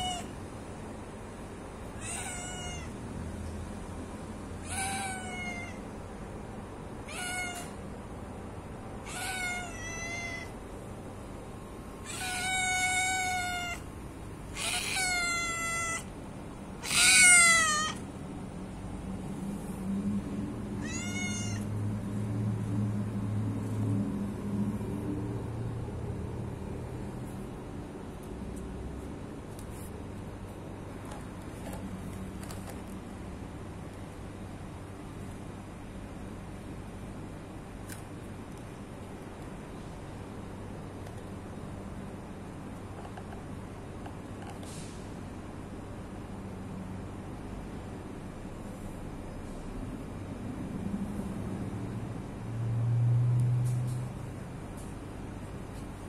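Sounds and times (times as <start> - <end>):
cat meowing: 0.0 - 0.4, 2.0 - 3.0, 4.6 - 5.9, 7.0 - 7.8, 9.0 - 10.6, 12.0 - 13.9, 14.5 - 16.1, 16.8 - 18.0, 20.8 - 21.7
low steady rumble: 0.0 - 56.0.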